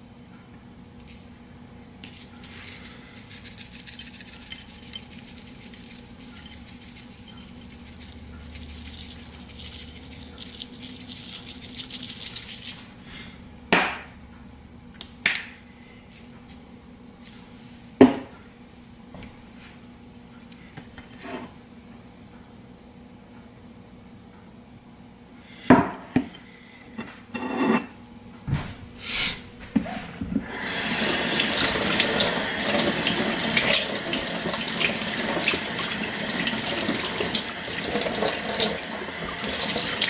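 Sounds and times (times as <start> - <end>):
seasoning rattling in shaker: 2.0 - 13.0.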